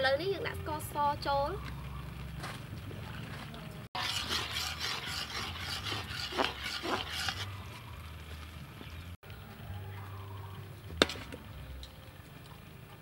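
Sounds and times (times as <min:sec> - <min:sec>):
metal ladle scraping a wok: 0:04.0 - 0:07.8.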